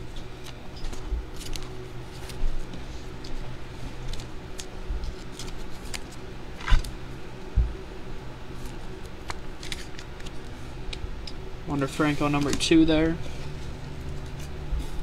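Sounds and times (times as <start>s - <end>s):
trading cards clicking and rustling: 0.4s - 7.0s, 8.6s - 10.6s, 11.8s - 15.0s.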